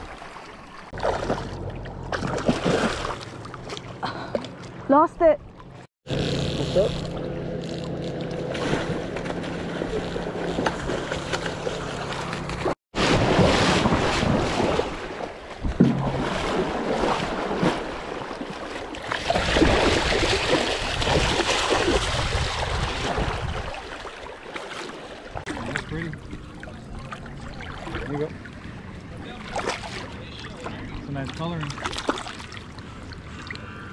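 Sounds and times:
river water sloshing and splashing: 0.0s - 5.9s, 7.2s - 33.8s
wind buffeting microphone: 20.7s - 23.8s.

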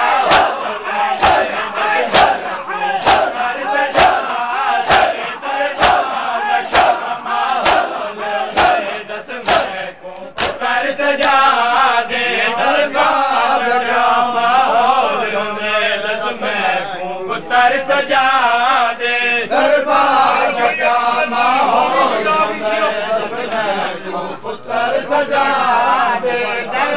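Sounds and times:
men chanting together: 0.0s - 26.9s
hands beating on chests: 3.0s - 4.2s.

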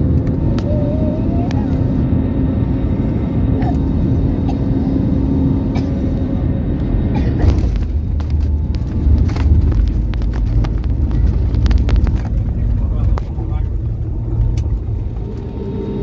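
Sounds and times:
jet engine and airflow roar: 0.0s - 16.0s.

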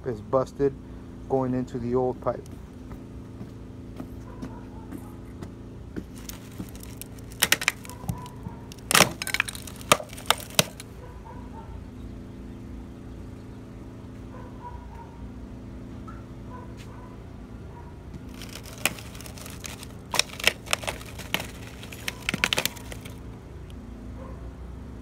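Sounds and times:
low machine hum: 0.0s - 25.0s
pipe cracking and snapping: 6.0s - 10.9s, 18.3s - 23.3s.

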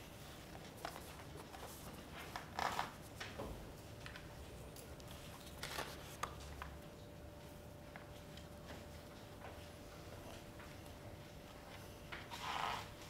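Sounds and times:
paper pages rustling: 5.0s - 6.8s.

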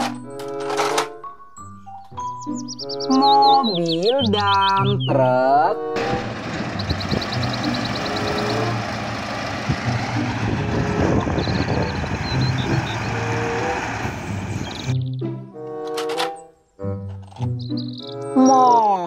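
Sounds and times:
truck engine rumbling: 0.0s - 18.5s
fast ticking: 6.1s - 9.0s.

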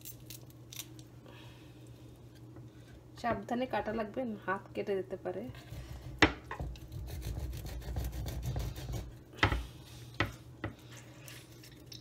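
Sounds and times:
knife sawing through fish head: 6.8s - 9.1s.

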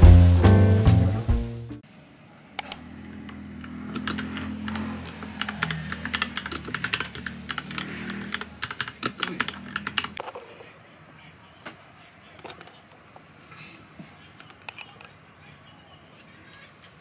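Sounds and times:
typing on computer keyboard: 3.7s - 10.3s.

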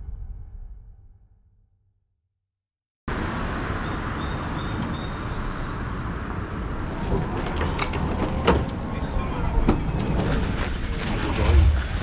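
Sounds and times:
traffic rumble: 3.1s - 12.0s
bird chirps: 3.8s - 5.8s.

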